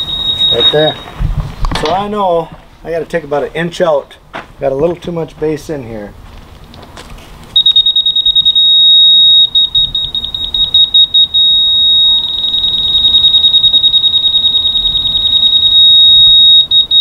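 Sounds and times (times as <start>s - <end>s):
rapid high-pitched beeps: 0.0s - 1.1s, 7.6s - 17.0s
steady beeping tone: 0.0s - 1.2s, 7.6s - 17.0s.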